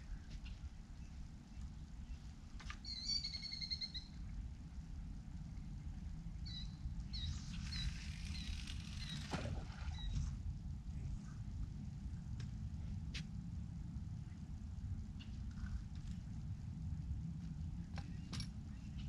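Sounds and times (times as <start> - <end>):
low wind rumble: 0.0 - 19.0
small birds chirping: 0.1 - 4.3, 6.4 - 9.3.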